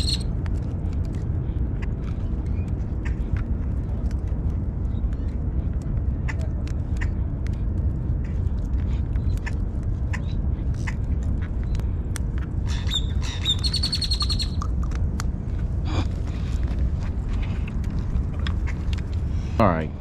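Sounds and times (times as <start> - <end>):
bird chattering call: 0.0 - 0.2
wind rumbling on microphone: 0.0 - 20.0.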